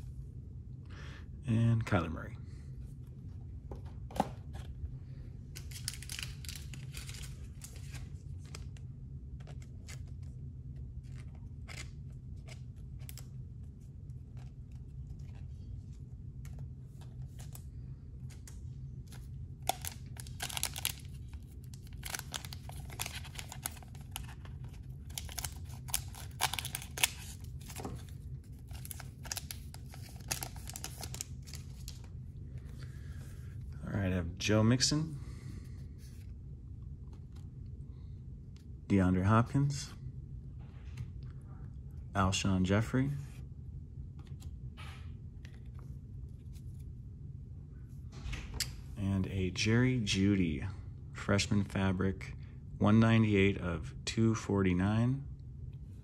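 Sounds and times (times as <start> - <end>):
low steady hum: 0.0 - 56.0
cards being handled: 5.5 - 33.6
foil wrapper tearing and crinkling: 5.6 - 8.0, 19.6 - 27.9, 28.6 - 32.0.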